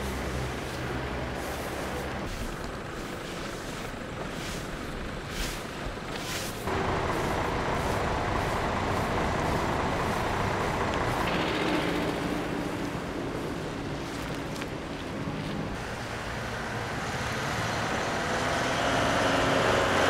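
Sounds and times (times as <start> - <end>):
brooms sweeping ash off asphalt: 0.0 - 11.4
vehicle noise: 0.0 - 20.0.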